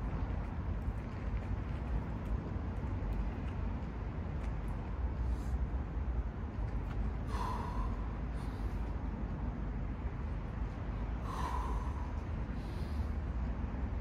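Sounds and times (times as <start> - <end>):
steady low rumble: 0.0 - 14.0
man breathing forcefully: 7.2 - 8.9, 11.2 - 13.3.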